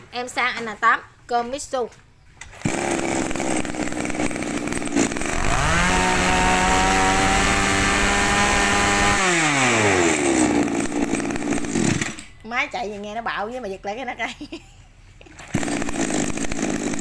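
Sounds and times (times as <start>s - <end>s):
brush cutter engine revving: 2.4s - 12.3s, 15.2s - 17.0s.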